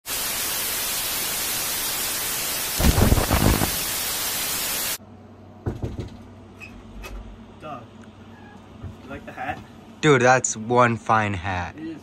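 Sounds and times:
tv static hiss: 0.1 - 5.0
deep distorted burst: 2.8 - 3.9.

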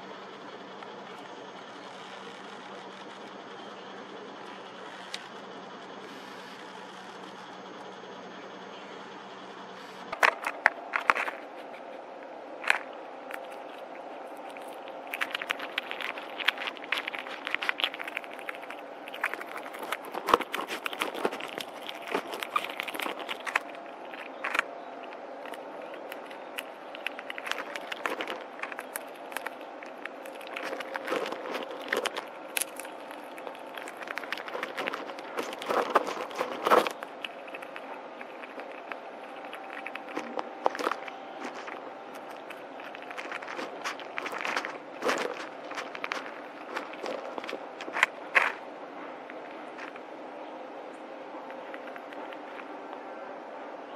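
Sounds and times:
steady background noise: 0.0 - 53.9
squirrel cracking and chewing seeds: 9.7 - 53.8
rummaging scrapes in seed mix: 39.6 - 48.6.

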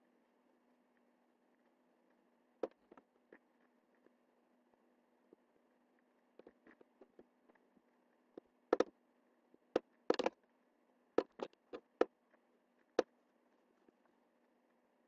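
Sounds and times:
faint low hum: 0.0 - 15.0
computer mouse clicks: 8.7 - 8.9, 9.8 - 10.4.

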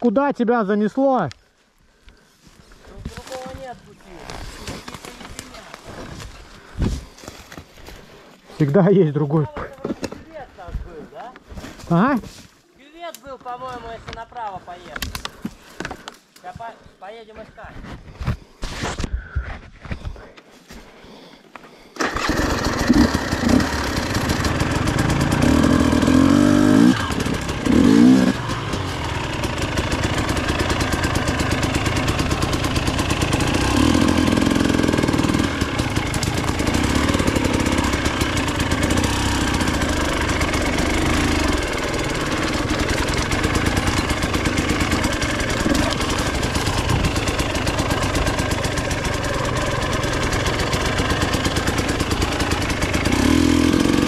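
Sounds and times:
dirt bike engine revving: 22.0 - 54.0.

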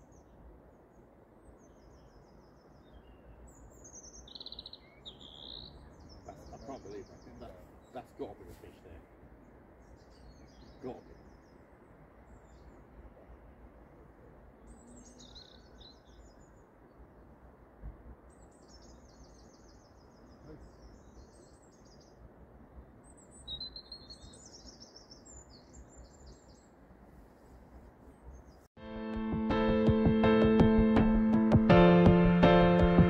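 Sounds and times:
songbird trilling: 2.9 - 8.1, 23.2 - 26.6.

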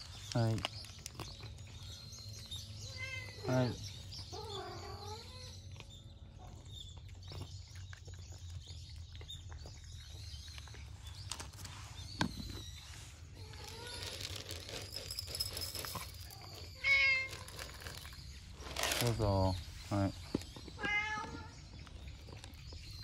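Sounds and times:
faint cat meowing: 2.9 - 5.5, 20.8 - 21.6.

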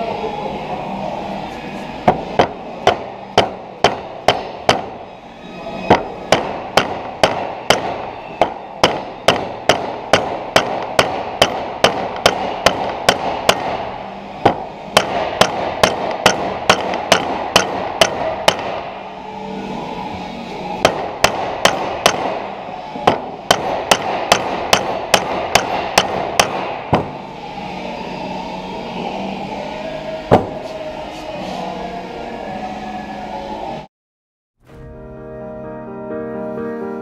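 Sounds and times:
mallet striking metal: 2.1 - 5.0, 5.9 - 18.8, 20.8 - 22.4, 23.0 - 27.2.

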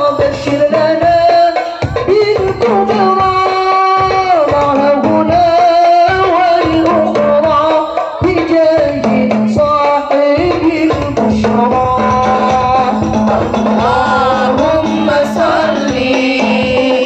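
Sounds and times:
devotional singing over loudspeakers: 0.0 - 17.0.

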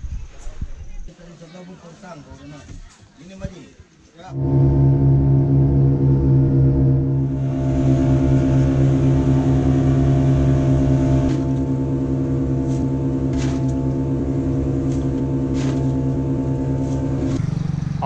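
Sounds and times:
boat engine droning: 4.3 - 18.0.

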